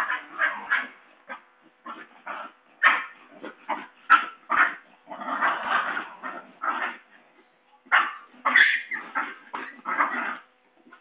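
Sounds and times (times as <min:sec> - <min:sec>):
puppies yelping and yipping: 0:07.9 - 0:11.0.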